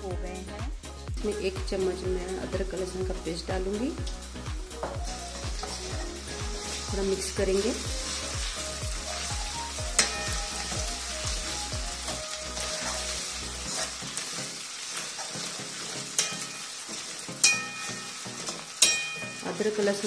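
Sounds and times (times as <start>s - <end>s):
onions sizzling in hot oil: 1.9s - 20.0s
spoon clinking against pan: 16.2s - 16.8s, 17.4s - 19.5s.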